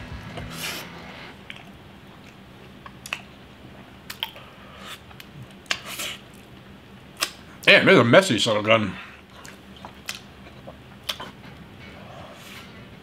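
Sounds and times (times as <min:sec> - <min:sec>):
person chewing cake: 0:04.0 - 0:06.6, 0:09.2 - 0:11.7.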